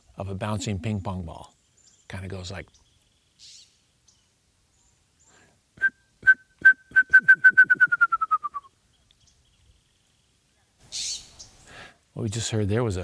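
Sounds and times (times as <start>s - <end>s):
person whistling bird song: 5.8s - 8.7s.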